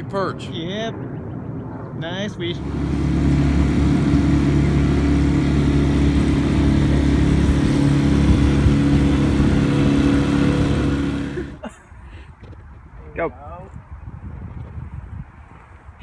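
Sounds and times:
outboard motor droning: 2.4 - 11.6.

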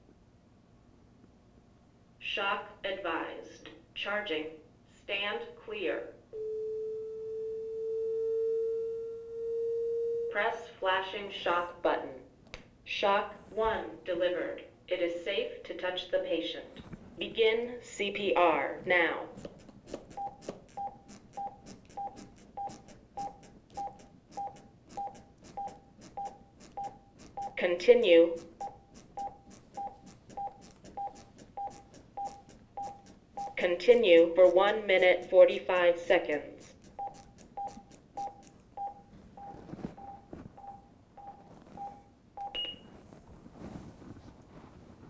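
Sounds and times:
clicks of chest compressions: 19.4 - 27.6, 28.4 - 33.6, 36.6 - 42.9
metronome beeps: 40.0 - 42.8.

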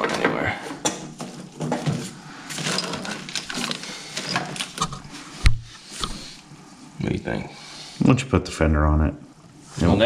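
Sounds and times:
hands rustling and clicking wiring: 0.0 - 6.4.

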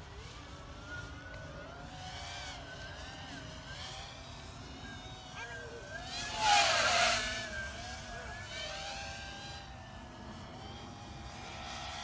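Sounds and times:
quadcopter propellers whining: 4.8 - 10.0.

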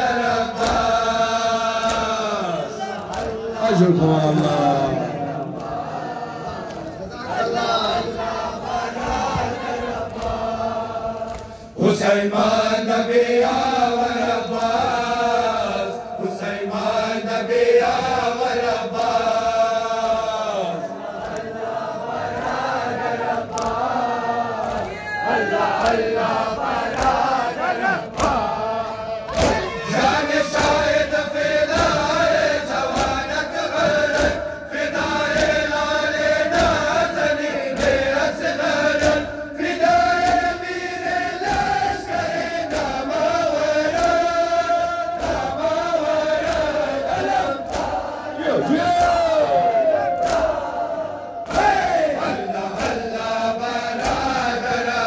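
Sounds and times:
men chanting in unison: 0.0 - 55.0
hands slapping bare chests: 0.5 - 1.0, 1.7 - 2.4, 3.0 - 3.4, 9.0 - 11.6, 23.3 - 23.9, 24.6 - 25.0, 25.7 - 27.5, 28.1 - 28.5, 29.3 - 29.8, 30.4 - 32.2, 32.8 - 34.4, 35.2 - 35.7, 38.8 - 40.6, 41.3 - 48.2, 51.4 - 53.1, 54.0 - 54.5.

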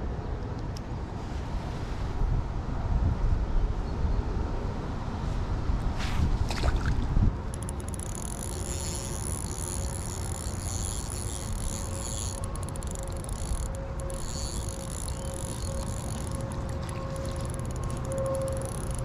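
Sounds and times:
insects chirring: 7.6 - 19.0.

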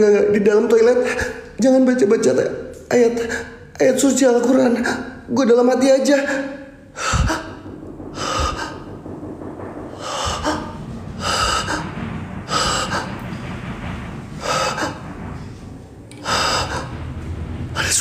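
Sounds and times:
man breathing heavily: 7.0 - 9.1.

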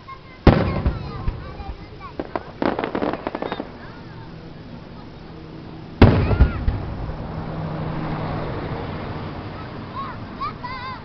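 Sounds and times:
rolling echo: 0.2 - 10.7
loud firework boom: 0.4 - 4.1, 6.0 - 7.6.

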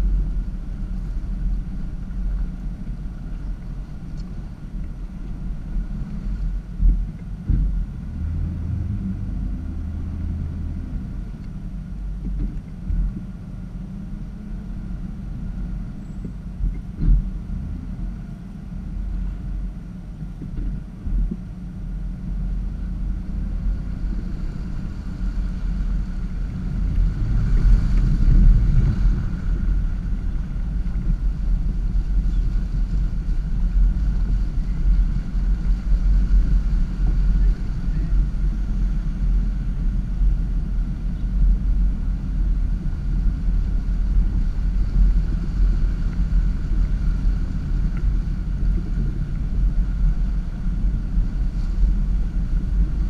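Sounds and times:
low engine rumble: 0.0 - 53.0
water washing around vehicle: 0.0 - 53.0
dull thumps from vehicle: 6.7 - 8.0, 12.2 - 13.3, 16.2 - 17.5.

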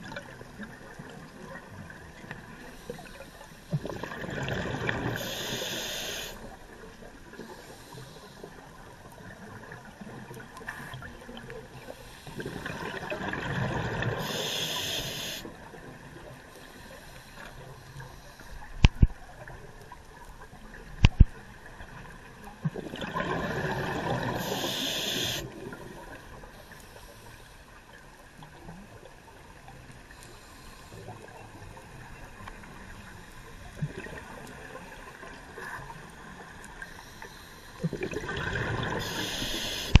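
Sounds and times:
exhaled bubbles rushing: 3.8 - 5.2, 12.4 - 14.2, 22.7 - 24.5, 37.9 - 39.1
diver breathing through regulator: 5.0 - 6.4, 14.0 - 15.5, 23.4 - 25.6, 38.8 - 40.0.

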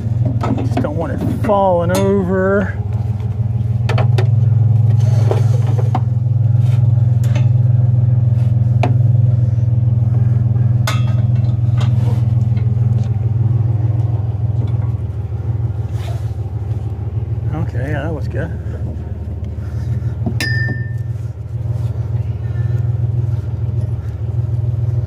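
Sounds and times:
truck engine idling: 0.0 - 25.0
scrap metal clanking: 3.8 - 7.8, 10.6 - 12.9.

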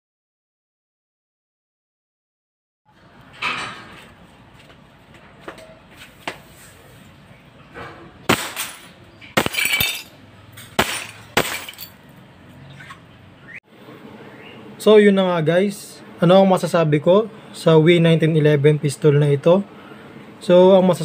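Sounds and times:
airsoft pistol shots: 8.3 - 8.8, 10.8 - 11.6
glass bottle shattering: 8.3 - 12.0.

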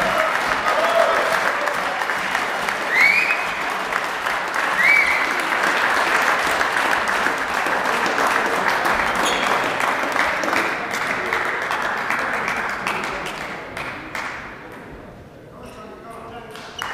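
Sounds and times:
crowd clapping: 0.0 - 14.8, 16.5 - 16.9.

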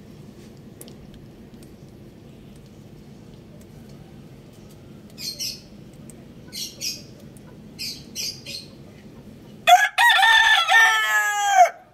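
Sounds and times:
low steady background noise: 0.0 - 11.9
rooster crowing: 9.6 - 11.9.

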